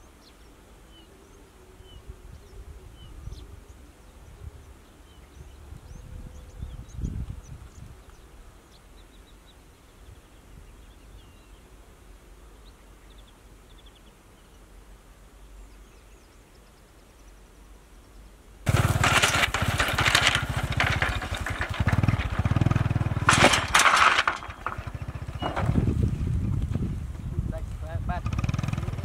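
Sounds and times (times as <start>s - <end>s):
faint birds chirping: 0.0s - 18.6s, 23.8s - 29.0s
motorbike engine revving: 18.7s - 26.1s, 28.2s - 29.0s.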